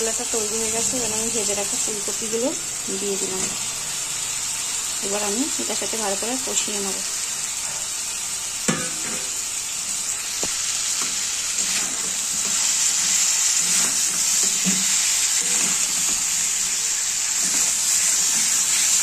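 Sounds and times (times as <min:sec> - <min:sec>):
vegetables sizzling in hot oil: 0:00.0 - 0:19.0
metal knock on pan: 0:08.7 - 0:09.3
metal spatula stirring and scraping: 0:11.0 - 0:19.0.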